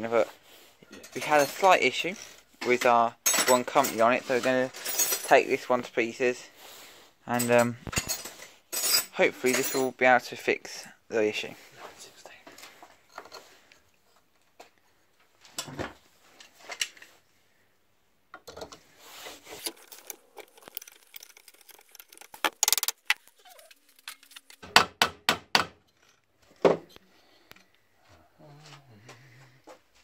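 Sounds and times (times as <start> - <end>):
metal tools clinking on metal: 0.9 - 5.6, 7.3 - 9.9.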